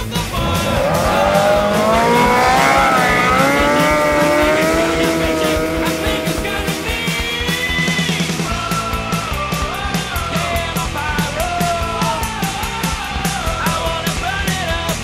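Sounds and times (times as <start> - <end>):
snowmobile engine revving: 0.0 - 8.7
rock music: 0.0 - 15.0.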